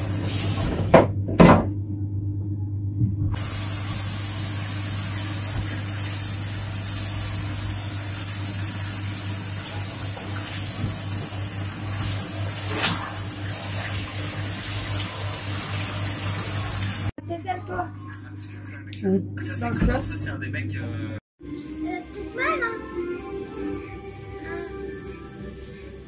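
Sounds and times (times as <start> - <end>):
water running from a tap: 0.0 - 0.9, 3.4 - 17.1.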